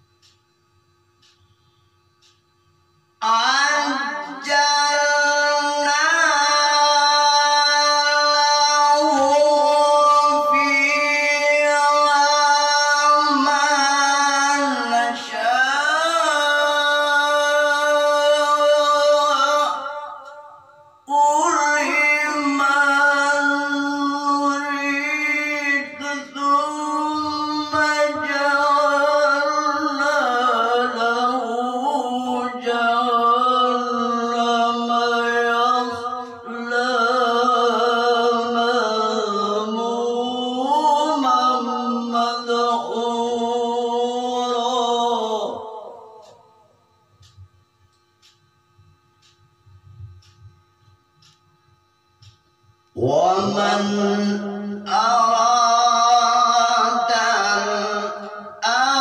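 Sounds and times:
man reciting melodically: 0:03.1 - 0:47.4, 0:52.2 - 0:59.0.

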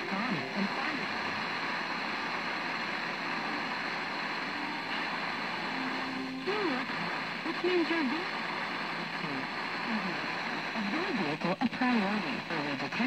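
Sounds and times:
faint voice on radio: 0:00.0 - 0:01.6
radio static hiss: 0:00.0 - 0:13.0.

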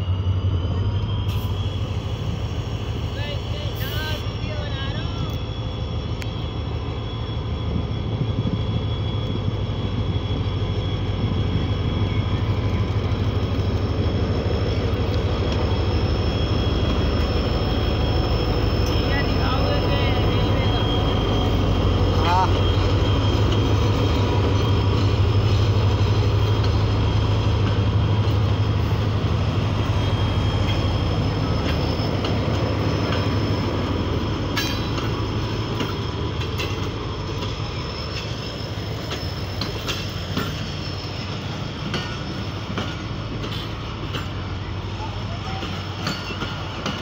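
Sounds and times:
locomotive engine rumble: 0:00.0 - 0:47.0
train coaches rolling past: 0:00.0 - 0:47.0
wheels clicking over rail joints: 0:34.5 - 0:37.5.

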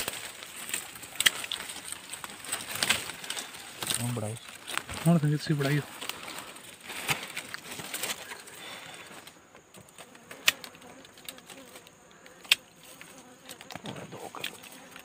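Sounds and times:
hand rustling in dry grass: 0:00.0 - 0:09.4
bees buzzing: 0:01.8 - 0:15.0.

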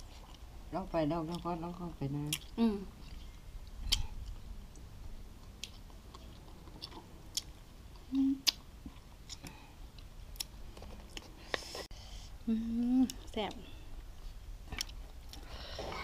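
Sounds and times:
person chewing: 0:00.0 - 0:00.5, 0:02.2 - 0:11.8, 0:14.2 - 0:16.0.

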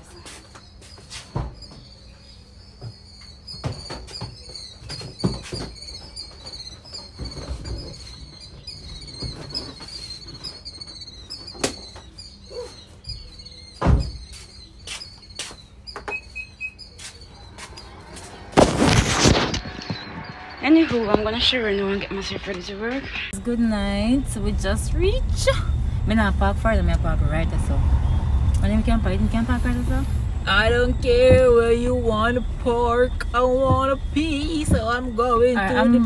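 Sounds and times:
bird chirping rapidly: 0:03.0 - 0:18.5.

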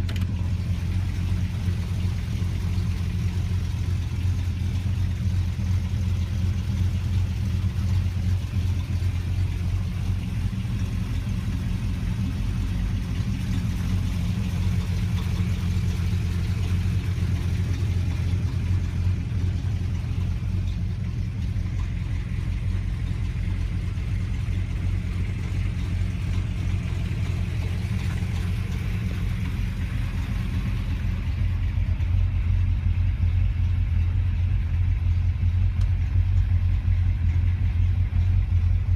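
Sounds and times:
car engine idling: 0:00.0 - 0:38.9.

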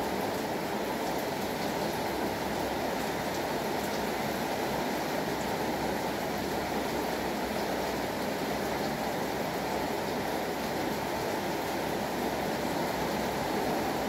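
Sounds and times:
steady rain falling: 0:00.0 - 0:14.0.

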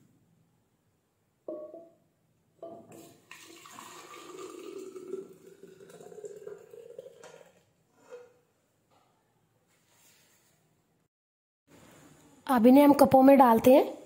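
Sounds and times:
glass clink: 0:01.5 - 0:02.0, 0:02.6 - 0:03.0
liquid pouring into a jug: 0:03.0 - 0:08.4.

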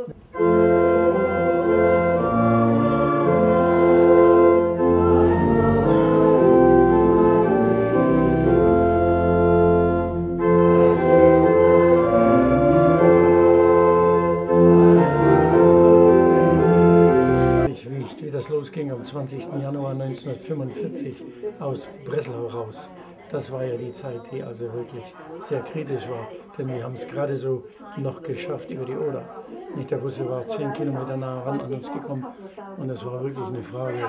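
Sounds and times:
organ playing held chords: 0:00.0 - 0:17.7.

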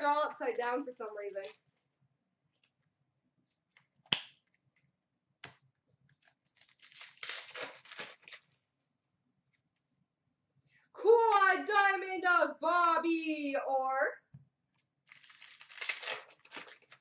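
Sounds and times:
wrapper tearing: 0:00.3 - 0:01.6, 0:06.2 - 0:08.6, 0:15.1 - 0:17.0.

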